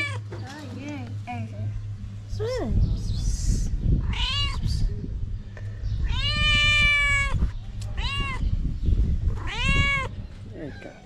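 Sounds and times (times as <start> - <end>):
cat meowing: 4.0 - 4.8, 6.0 - 7.4, 8.0 - 8.5, 9.3 - 11.0.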